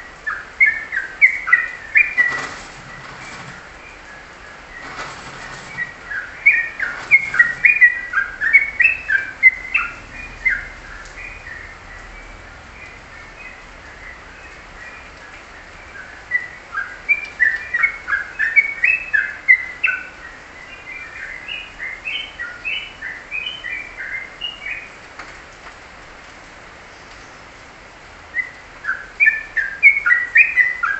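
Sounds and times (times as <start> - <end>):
bulbul singing: 0.0 - 12.2.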